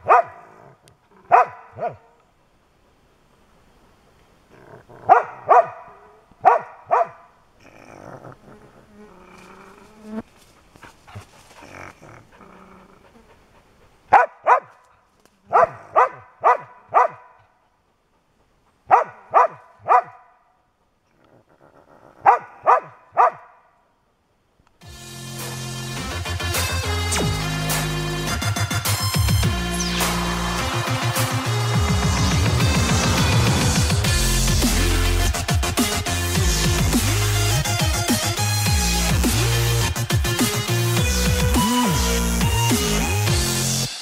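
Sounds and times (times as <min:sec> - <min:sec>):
pup yapping barks: 0:00.0 - 0:00.4, 0:01.3 - 0:02.0, 0:05.1 - 0:07.3, 0:14.1 - 0:14.8, 0:15.5 - 0:17.4, 0:18.9 - 0:20.3, 0:22.2 - 0:23.6
rough animal sound: 0:07.6 - 0:13.7, 0:21.1 - 0:22.4.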